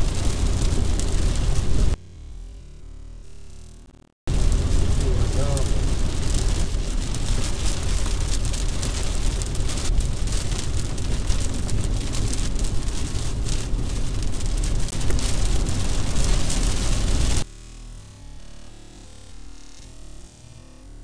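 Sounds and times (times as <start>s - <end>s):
rain on car windscreen and roof: 0.0s - 2.0s, 4.2s - 17.5s
road and engine rumble: 0.0s - 21.0s.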